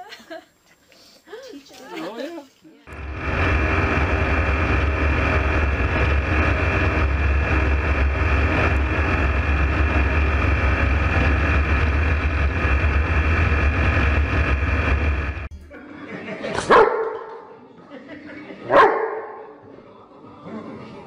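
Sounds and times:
aircraft engine and propeller drone: 2.9s - 15.5s
rushing air: 2.9s - 15.5s.

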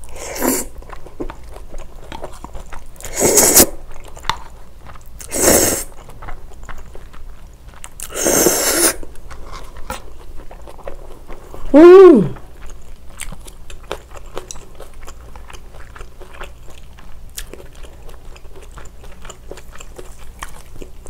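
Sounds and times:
wet chewing: 0.0s - 21.0s
noodles slurping: 3.0s - 3.8s, 5.2s - 6.0s, 8.0s - 9.0s.

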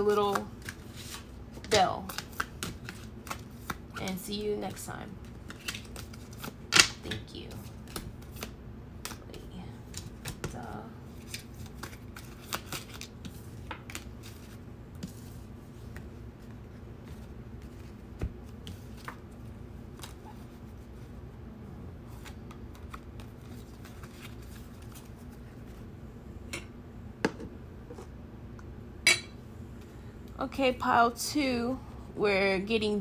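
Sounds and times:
cards being shuffled: 0.0s - 21.0s, 22.1s - 25.8s
faint room hum: 0.0s - 33.0s.

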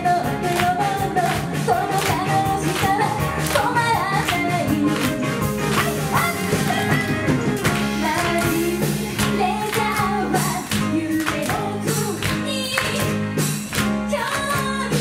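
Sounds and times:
women singing together: 0.0s - 5.1s, 8.0s - 12.9s
bass guitar: 0.0s - 15.0s
drums with steady beat: 0.0s - 15.0s
electric guitar: 0.0s - 15.0s.

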